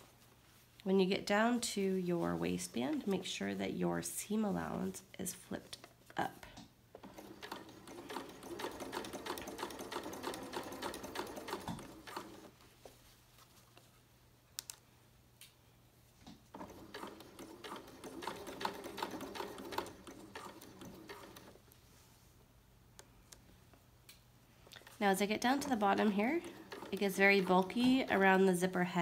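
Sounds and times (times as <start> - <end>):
sewing machine stitching: 7.0 - 12.5, 16.5 - 21.6, 24.8 - 28.4.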